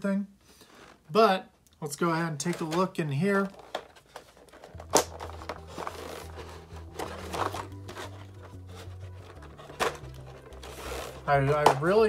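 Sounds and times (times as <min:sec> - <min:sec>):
plastic crackling and clicking: 0:02.4 - 0:12.0
plastic snapping: 0:03.5 - 0:06.1, 0:09.2 - 0:10.7
soft background music: 0:03.5 - 0:12.0.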